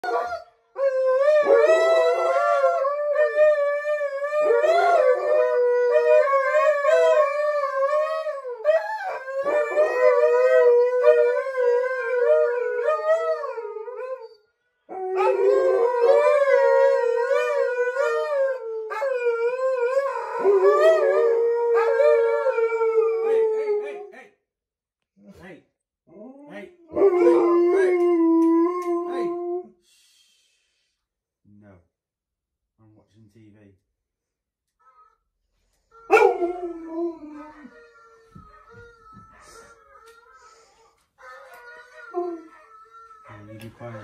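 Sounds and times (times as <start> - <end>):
dogs howling: 0.0 - 14.3, 14.9 - 24.1, 26.2 - 29.7, 36.0 - 40.2, 41.2 - 44.0
dogs howling on television: 0.0 - 24.1, 26.1 - 29.7, 36.0 - 44.0.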